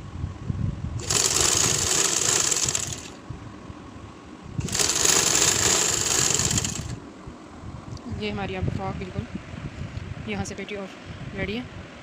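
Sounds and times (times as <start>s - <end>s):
sewing machine stitching: 1.0s - 3.2s, 4.6s - 7.0s.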